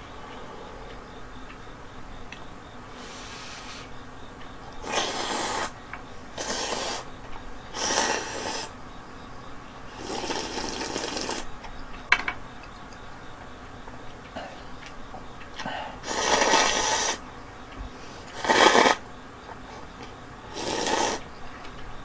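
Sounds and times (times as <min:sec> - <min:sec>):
person slurping noodles: 0:04.8 - 0:05.8, 0:06.4 - 0:07.0, 0:07.8 - 0:08.7, 0:10.0 - 0:11.5, 0:16.0 - 0:17.2, 0:18.3 - 0:19.0, 0:20.5 - 0:21.2.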